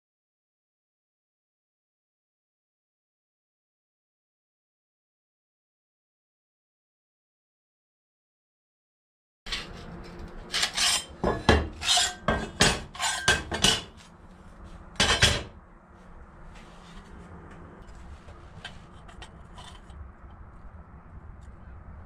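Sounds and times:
sheet steel pieces clanking: 10.4 - 14.0, 15.0 - 15.5.

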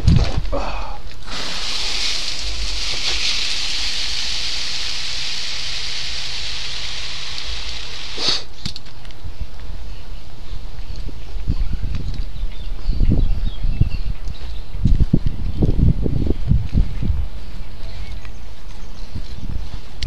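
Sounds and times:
hose nozzle spraying water: 1.2 - 8.5.

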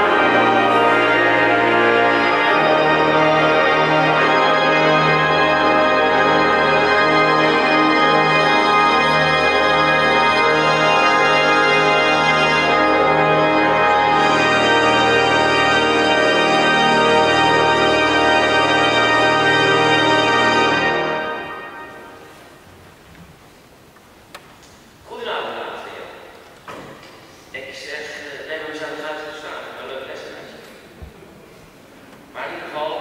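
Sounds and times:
pipe organ chords: 0.0 - 22.7.

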